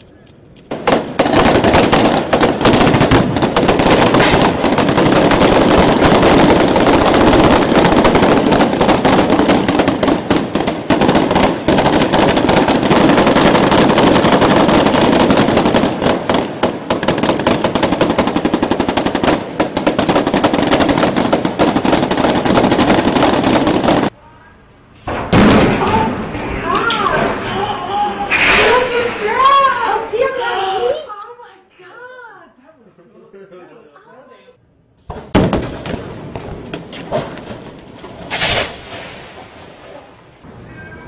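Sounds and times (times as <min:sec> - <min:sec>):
rapid automatic gunfire: 0:00.8 - 0:24.1.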